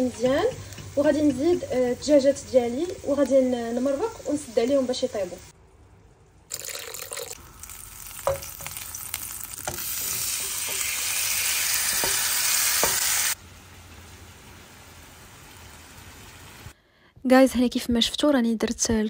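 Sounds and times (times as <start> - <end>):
shrimp sizzling in frying pan: 0.0 - 5.4, 7.4 - 16.7.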